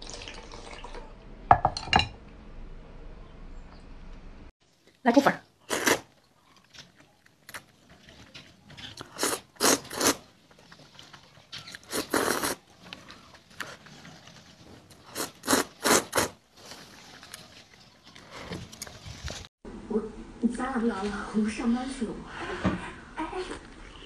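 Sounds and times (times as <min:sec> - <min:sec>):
quiet eating noises: 0:05.6 - 0:19.3, 0:22.9 - 0:24.0
person slurping noodles: 0:05.7 - 0:06.1, 0:09.0 - 0:10.3, 0:11.8 - 0:12.6, 0:14.9 - 0:16.4.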